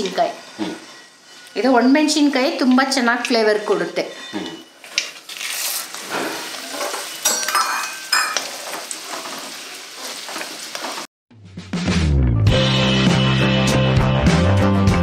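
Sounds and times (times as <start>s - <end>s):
metal ladle stirring: 0.0s - 10.6s
chillies sizzling in hot oil: 4.8s - 11.1s
background music: 11.4s - 15.0s.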